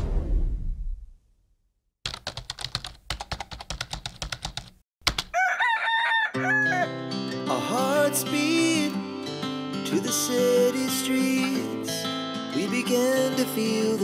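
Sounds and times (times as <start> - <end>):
rooster crowing: 5.3 - 7.0
guitar music: 6.3 - 14.0.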